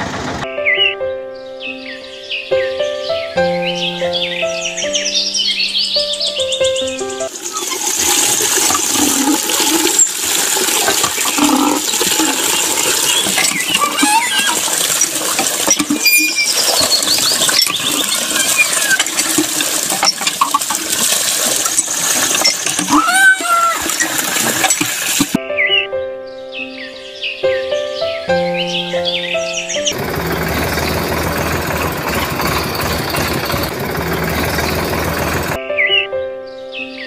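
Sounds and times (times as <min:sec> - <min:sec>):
water pouring into puddle: 0:07.3 - 0:25.4, 0:29.9 - 0:35.6.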